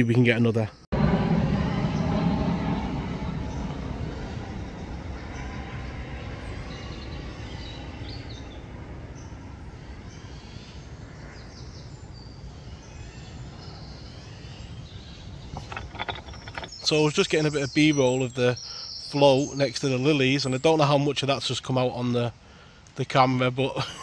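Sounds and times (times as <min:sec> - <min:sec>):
low outdoor rumble: 0:00.9 - 0:17.6
birds chirping and singing: 0:03.0 - 0:22.0.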